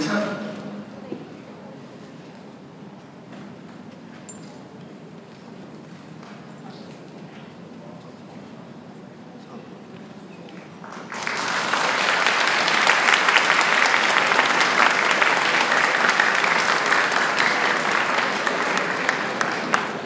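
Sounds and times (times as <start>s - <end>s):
audience applauding: 10.8s - 20.0s.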